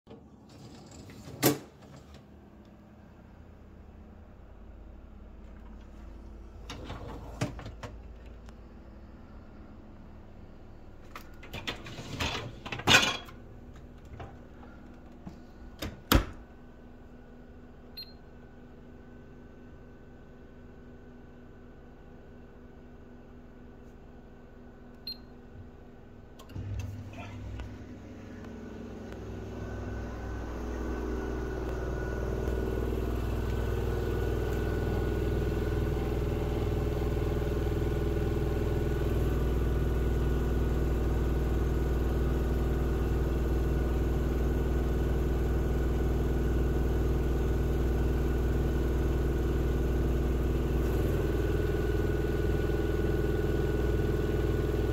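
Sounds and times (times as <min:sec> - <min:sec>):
washing machine running: 0:03.1 - 0:16.8, 0:25.1 - 0:54.9.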